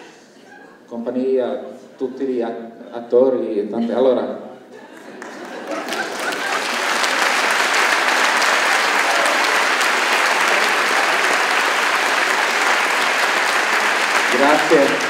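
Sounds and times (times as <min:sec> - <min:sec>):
audience applauding: 0:04.9 - 0:15.0.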